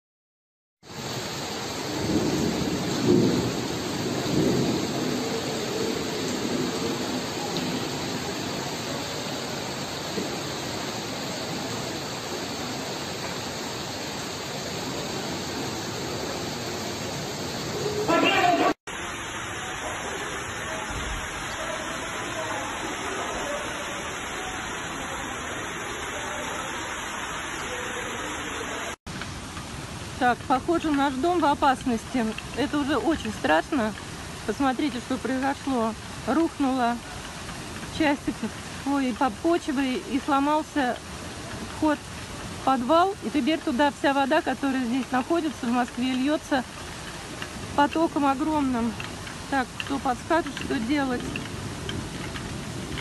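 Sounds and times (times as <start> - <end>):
heavy rain: 0.8 - 53.0
running floodwater: 0.8 - 53.0
thunder rumbling: 0.9 - 18.8, 29.1 - 53.0.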